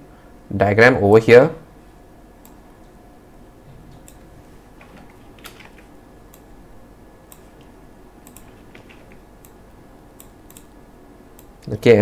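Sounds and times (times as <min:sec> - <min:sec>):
faint steady hum: 0:00.0 - 0:12.0
mouse and keyboard clicks: 0:03.9 - 0:06.5, 0:07.3 - 0:09.6, 0:10.2 - 0:10.7.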